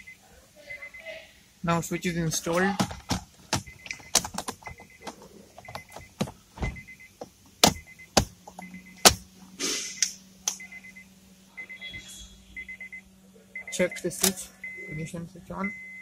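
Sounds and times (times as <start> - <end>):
short electronic beep: 11.6 - 13.0.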